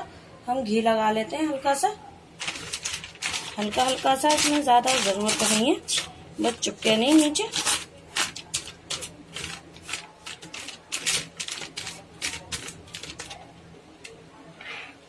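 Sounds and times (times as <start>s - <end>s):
paper crackling and rustling: 2.4s - 14.2s.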